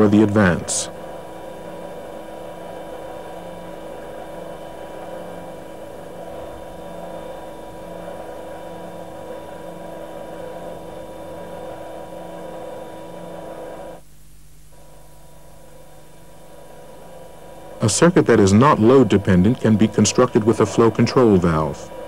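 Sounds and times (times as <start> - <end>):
hydraulic power unit hum: 0.0 - 22.0.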